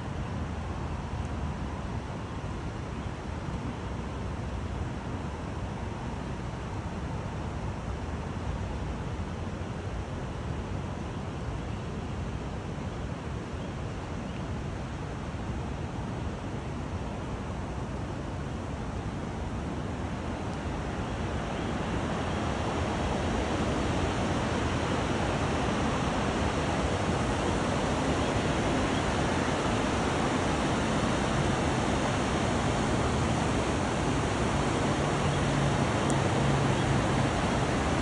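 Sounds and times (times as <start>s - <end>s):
whitewater rapids rushing: 20.2s - 38.0s.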